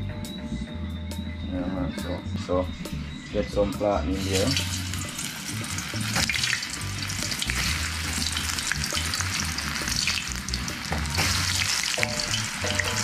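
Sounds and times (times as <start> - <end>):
plantain frying in hot oil: 4.2 - 13.0.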